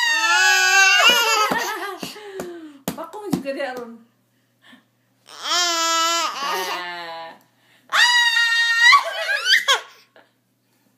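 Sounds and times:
baby babbling: 5.3 - 7.0.

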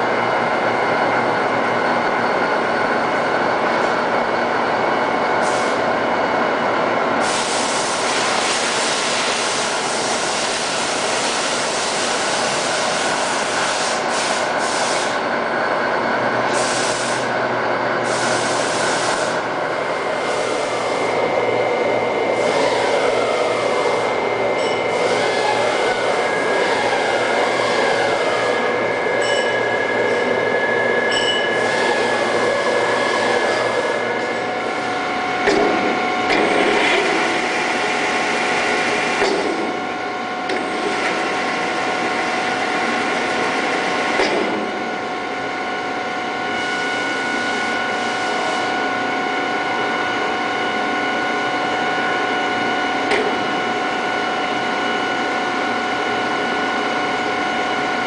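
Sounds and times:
boring mill whirring and whining: 0.0 - 58.0
machine knocks: 35.4 - 36.8.

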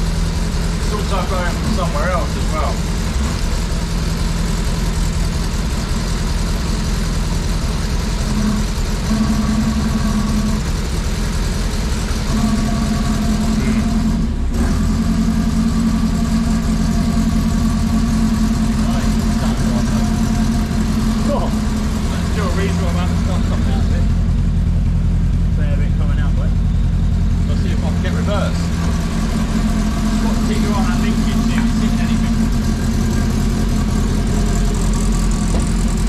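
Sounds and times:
car engine idling: 0.0 - 36.0.

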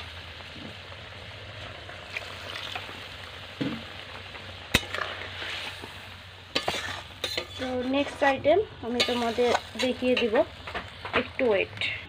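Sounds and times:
gravy sizzling: 0.0 - 12.0
spatula stirring thick curry: 4.7 - 10.9.

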